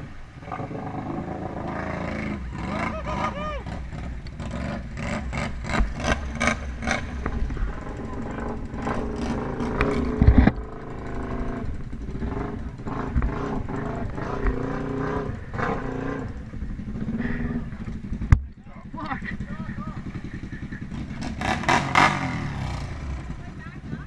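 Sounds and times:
off-road engines revving: 0.0s - 24.0s
vehicles churning through mud: 0.0s - 24.0s.

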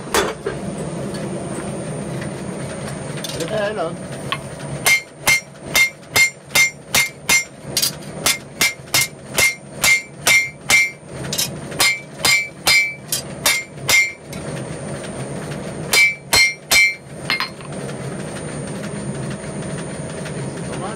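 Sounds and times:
hammer ringing on anvil: 4.8s - 7.5s, 8.3s - 14.2s, 15.9s - 17.6s.

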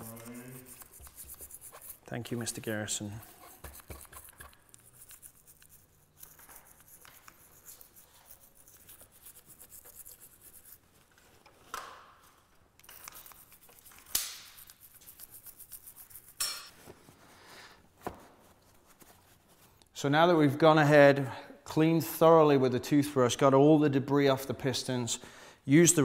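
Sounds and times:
toothbrush scrubbing metal: 0.0s - 10.9s, 12.8s - 16.8s.

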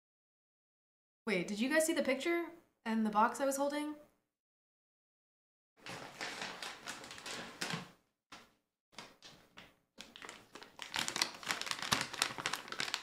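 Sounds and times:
plastic pouch crinkling: 5.8s - 7.8s, 10.0s - 13.0s.

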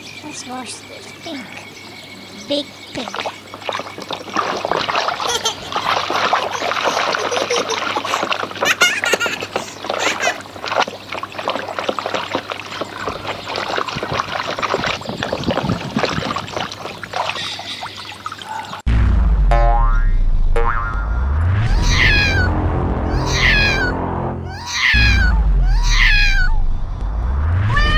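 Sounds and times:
water sloshing in plastic basin: 3.0s - 18.8s.

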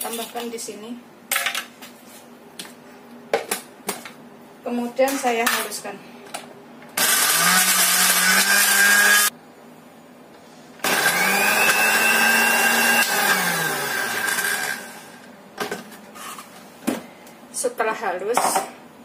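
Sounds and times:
blender grinding: 7.0s - 9.3s, 10.8s - 15.3s.

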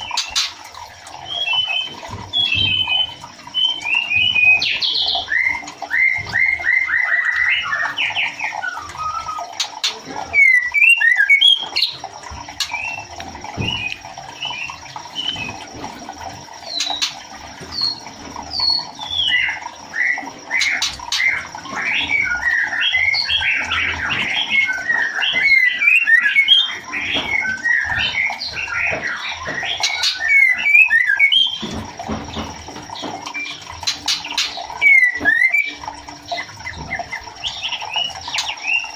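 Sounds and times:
bird whistling and chattering: 1.3s - 12.0s, 18.6s - 31.7s, 33.3s - 35.8s.

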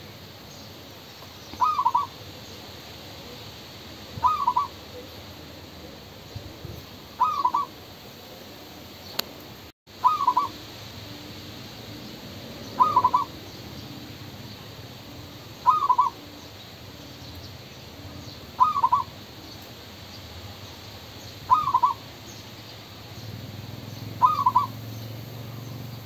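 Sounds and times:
dove cooing: 1.6s - 2.2s, 4.1s - 6.6s, 7.2s - 7.8s, 10.0s - 17.2s, 17.9s - 19.3s, 21.5s - 22.1s, 24.2s - 24.9s.

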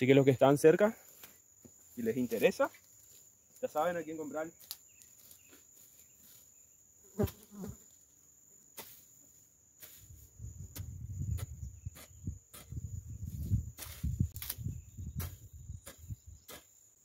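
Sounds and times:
insects droning: 0.0s - 17.0s
footsteps on soil: 4.6s - 6.5s, 9.8s - 16.8s.

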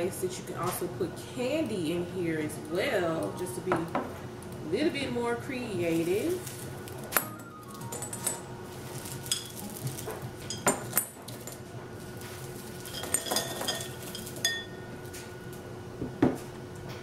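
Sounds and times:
candies clinking against glass: 6.0s - 11.6s, 12.5s - 14.8s.

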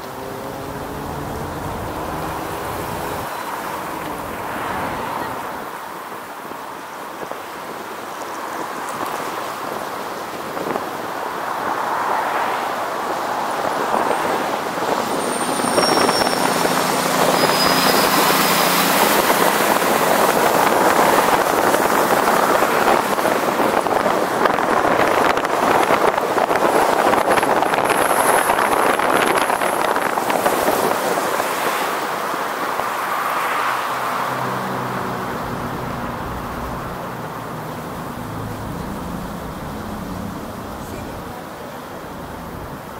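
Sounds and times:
tyre and wind road noise: 0.0s - 42.9s
faint high squeals: 15.1s - 18.5s.

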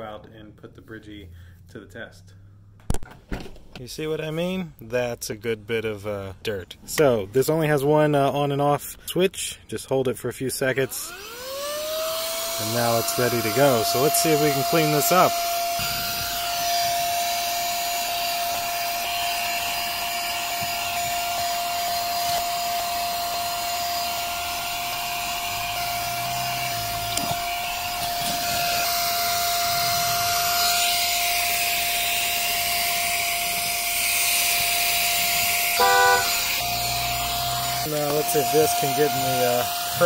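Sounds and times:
handheld vacuum cleaner whine: 11.0s - 40.0s.

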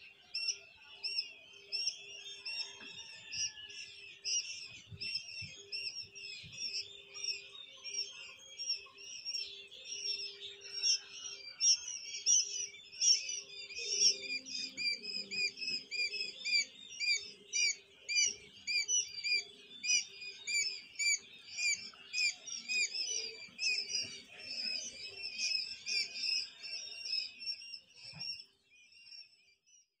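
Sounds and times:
quail chicks peeping: 0.0s - 29.6s.

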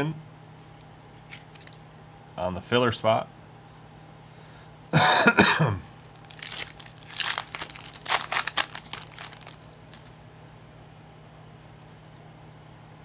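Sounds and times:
man coughing: 4.9s - 5.9s
foil pack crinkling and tearing: 6.1s - 10.1s.

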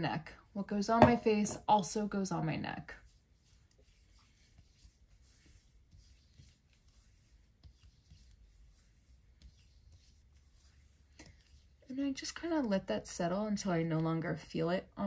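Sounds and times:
fingertips rubbing skin: 3.0s - 11.9s.

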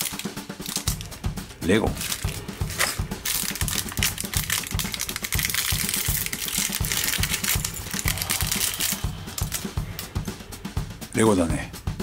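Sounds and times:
plastic bag crinkling: 0.0s - 1.1s, 1.9s - 9.8s
steady low beat: 0.1s - 12.0s.

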